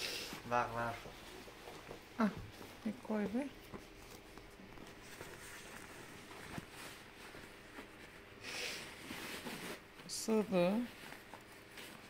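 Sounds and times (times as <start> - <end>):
rustling scrape: 3.6 - 12.0.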